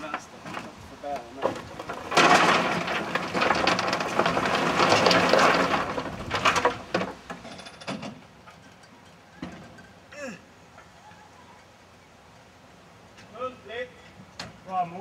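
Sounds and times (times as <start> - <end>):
coal lumps rattling into bunker: 0.0 - 11.0.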